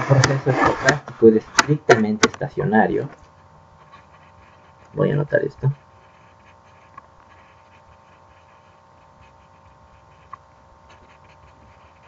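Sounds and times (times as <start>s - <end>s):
electrical hum: 0.0s - 12.0s
pen writing scratches: 3.8s - 4.9s, 6.0s - 12.0s.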